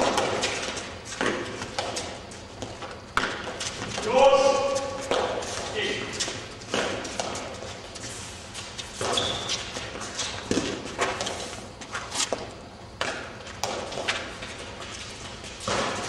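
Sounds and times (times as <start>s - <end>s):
shoe squeak: 7.8s - 10.6s.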